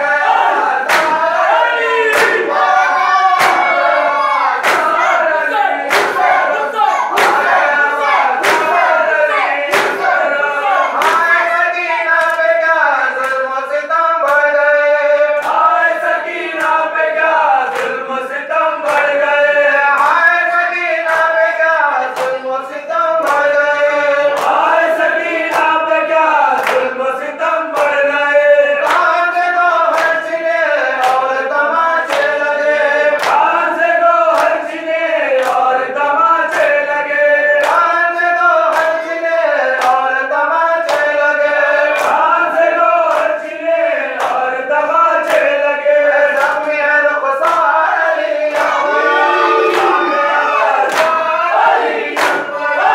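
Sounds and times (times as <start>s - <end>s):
men chanting: 0.0s - 52.9s
hands slapping chests: 0.5s - 4.0s, 4.6s - 10.4s, 11.0s - 11.4s, 22.1s - 22.4s, 24.3s - 24.7s, 26.6s - 26.9s, 31.0s - 31.3s, 33.2s - 33.5s, 39.8s - 40.0s, 40.8s - 41.2s, 41.9s - 42.3s, 43.0s - 43.4s, 45.2s - 45.6s, 46.3s - 46.8s, 47.4s - 47.7s, 49.7s - 50.1s, 50.8s - 52.9s.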